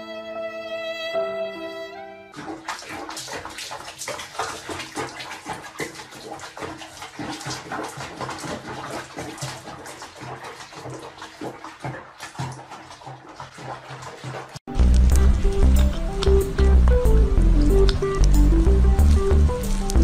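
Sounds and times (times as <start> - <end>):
background music: 0.0 - 2.4, 14.7 - 20.0
water splashing in a tub: 2.3 - 20.0.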